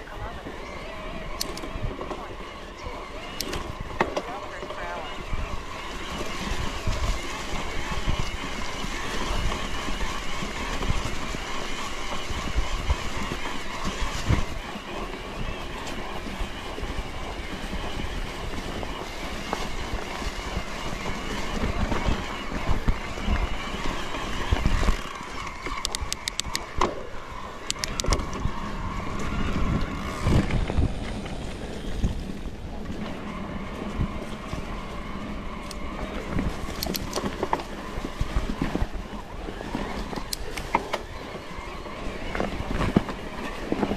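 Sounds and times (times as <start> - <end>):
tyre and road noise: 0.0 - 43.9
wind buffeting microphone: 0.0 - 43.9
sharp clicks: 1.3 - 1.8, 25.6 - 26.9, 27.6 - 28.4, 36.7 - 37.3.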